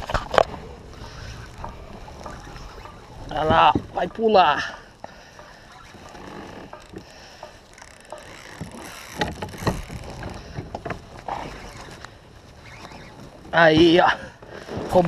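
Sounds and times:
water lapping around kayak: 0:00.0 - 0:15.0
fishing reel clicks and knocks: 0:04.0 - 0:11.0.

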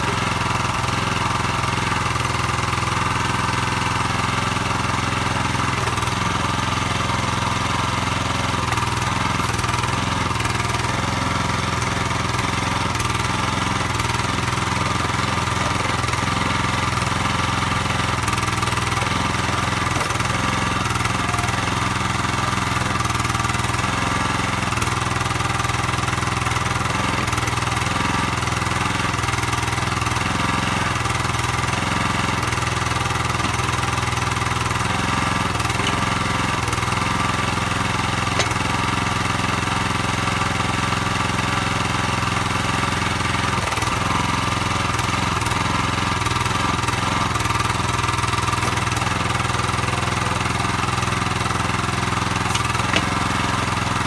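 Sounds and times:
small engine running: 0:00.0 - 0:54.0
backhoe bucket digging soil: 0:05.1 - 0:39.3, 0:43.5 - 0:54.0.

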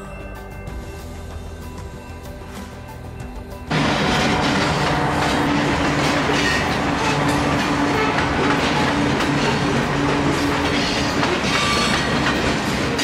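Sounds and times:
locomotive engine drone: 0:02.4 - 0:13.0
train wheels clacking over rail joints: 0:03.7 - 0:13.0.

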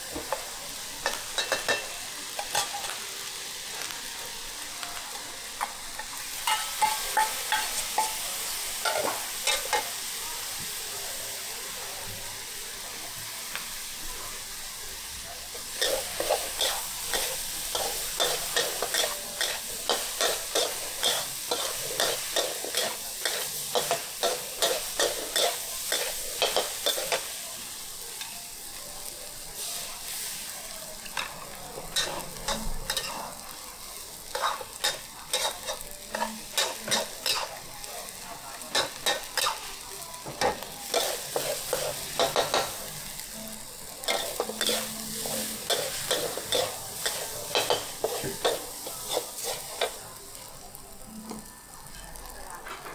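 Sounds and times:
hot oil sizzling: 0:00.0 - 0:52.9
metal spatula scraping a wok: 0:15.6 - 0:27.3, 0:40.8 - 0:42.8, 0:44.0 - 0:50.0.

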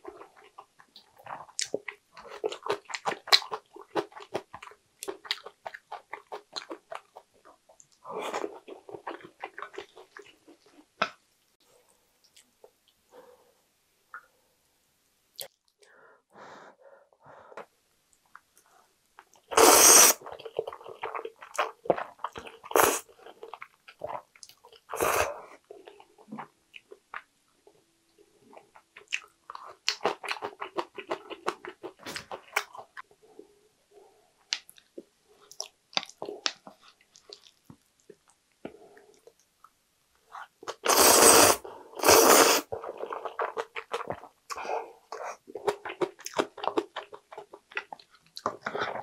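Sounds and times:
wet chewing with mouth clicks: 0:00.0 - 0:11.2, 0:34.5 - 0:41.0, 0:42.0 - 0:49.0
person slurping noodles: 0:19.5 - 0:20.2, 0:24.9 - 0:25.4, 0:40.7 - 0:43.6.

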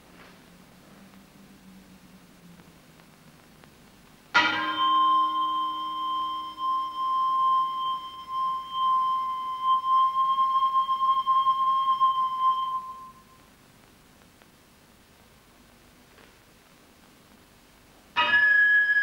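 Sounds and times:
singing bowl ringing: 0:04.4 - 0:13.4, 0:18.2 - 0:19.0.

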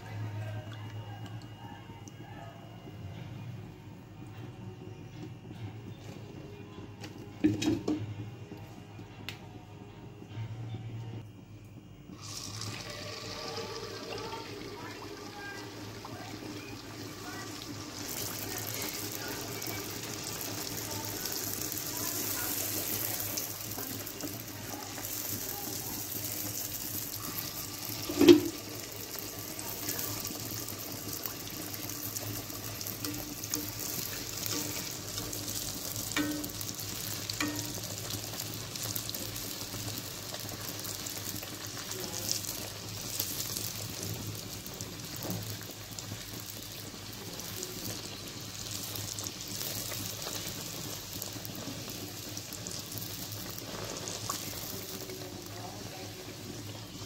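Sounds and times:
puris sizzling in hot oil: 0:11.7 - 0:57.0.

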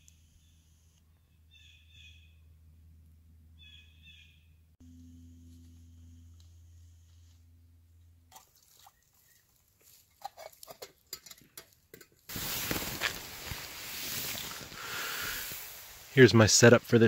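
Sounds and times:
low steady hum: 0:00.0 - 0:17.0
fabric rustling against microphone: 0:12.3 - 0:16.2.

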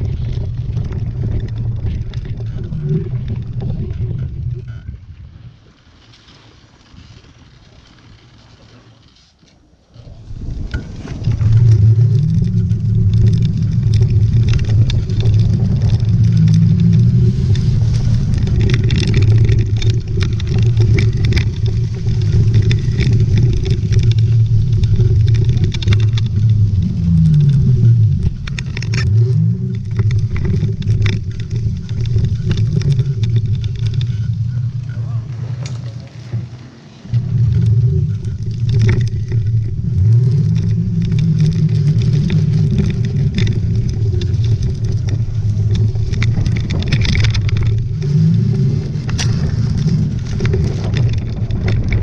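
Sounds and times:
vehicle engine humming: 0:10.0 - 0:52.0
scattered clicks and knocks: 0:10.6 - 0:35.0, 0:35.6 - 0:52.0.

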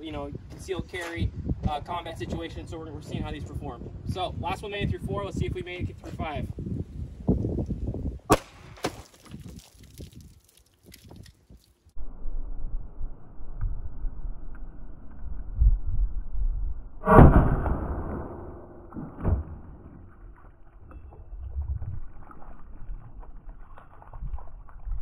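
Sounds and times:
pistol shot: 0:08.3 - 0:09.0
steady low rumble: 0:11.9 - 0:25.0.

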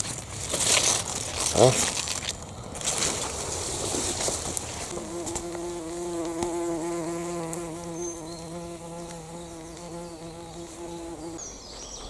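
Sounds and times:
flying insect buzzing: 0:03.6 - 0:11.4.

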